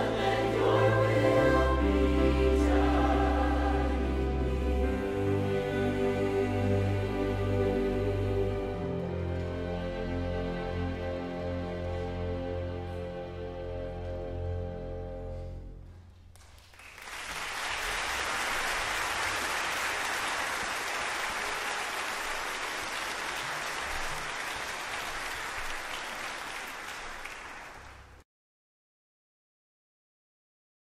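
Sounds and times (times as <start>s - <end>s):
string orchestra chord: 0.0s - 15.8s
audience applause: 16.4s - 28.2s.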